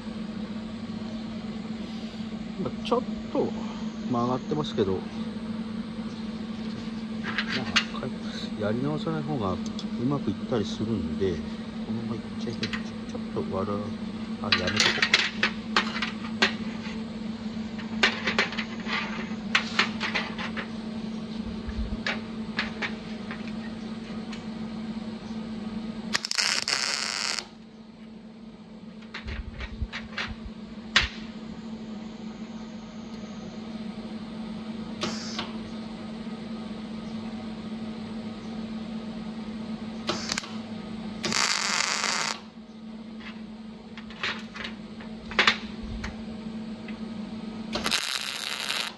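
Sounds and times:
low steady hum: 0:00.0 - 0:48.9
welding arc crackling: 0:26.1 - 0:27.6, 0:40.1 - 0:40.6, 0:41.2 - 0:42.4, 0:47.8 - 0:48.9.

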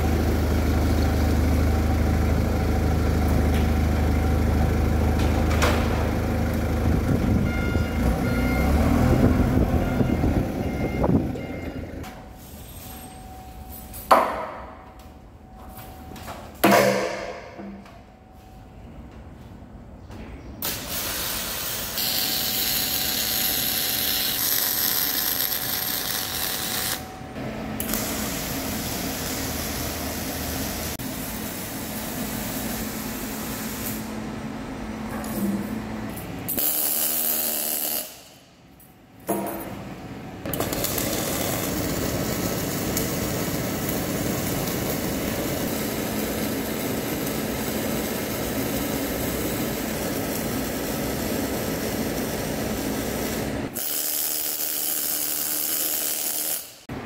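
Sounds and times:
welding arc crackling and buzzing: 0:20.6 - 0:27.1, 0:27.8 - 0:34.2, 0:36.5 - 0:38.3, 0:40.5 - 0:56.8.

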